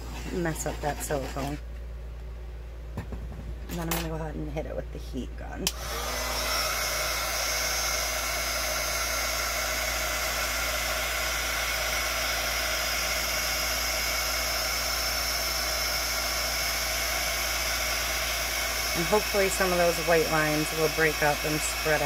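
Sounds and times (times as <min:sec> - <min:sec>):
heat gun fan hissing: 0:05.7 - 0:22.0.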